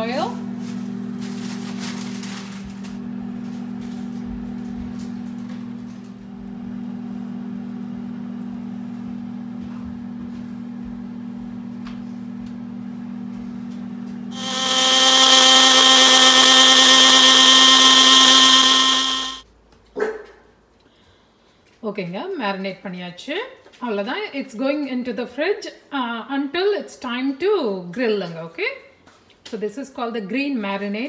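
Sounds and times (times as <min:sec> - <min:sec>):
blender whining: 0:14.2 - 0:19.4
steady low hum: 0:14.3 - 0:19.4.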